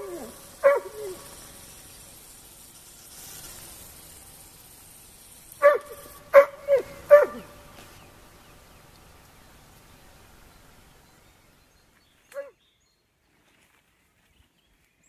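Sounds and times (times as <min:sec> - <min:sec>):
animal barking: 0:00.0 - 0:01.4, 0:05.6 - 0:07.6.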